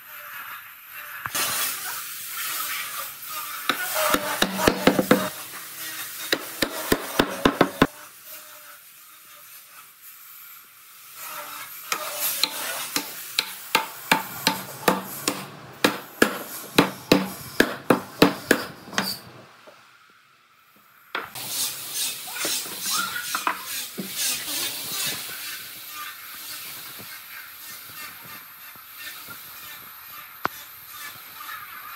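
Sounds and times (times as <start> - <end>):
tool scraping wood: 2.4 - 8.0, 11.2 - 19.4, 21.2 - 31.9.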